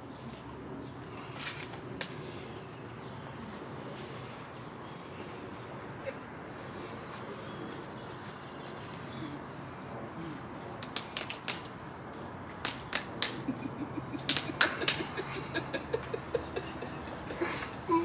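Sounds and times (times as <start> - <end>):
hand slaps and claps: 10.8 - 11.8, 12.6 - 13.5, 14.2 - 15.1.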